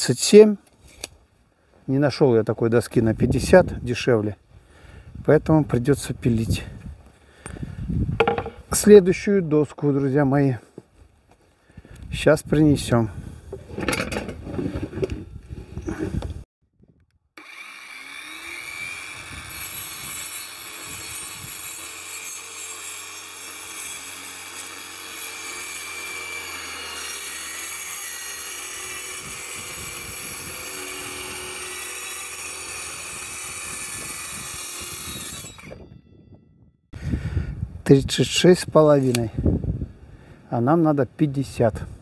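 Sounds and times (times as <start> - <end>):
power saw cutting wood: 17.4 - 35.8.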